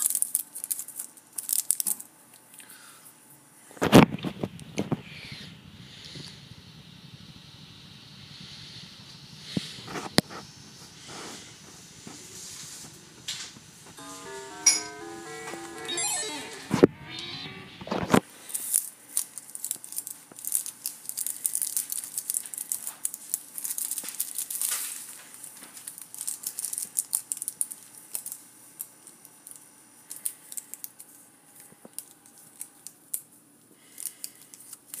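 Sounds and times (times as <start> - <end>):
crinkly rustling: 18.5 - 28.4.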